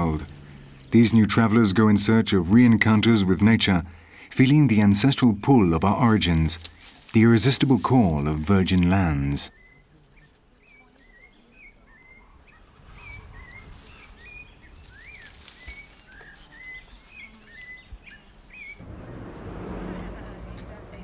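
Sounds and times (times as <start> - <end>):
high insect drone: 0.0 - 20.5
birds chirping and whistling: 10.7 - 18.8
low outdoor rumble: 12.6 - 21.0.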